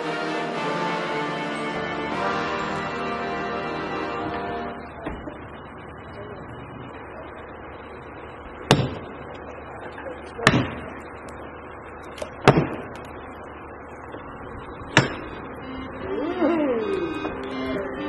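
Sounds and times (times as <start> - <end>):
axe chopping tree trunk: 8.7 - 9.0, 10.4 - 10.9, 12.2 - 13.0, 14.9 - 15.3.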